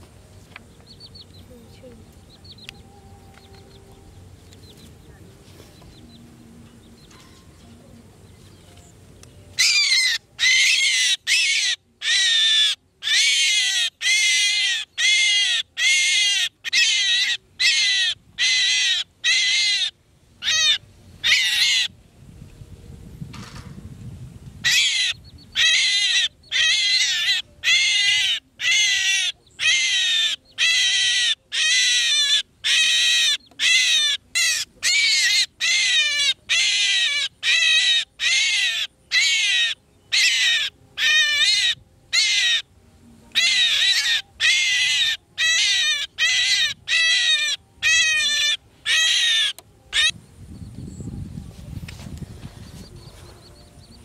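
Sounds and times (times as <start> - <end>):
bird harsh distress calls: 9.6 - 21.9, 24.6 - 42.7, 43.3 - 50.2.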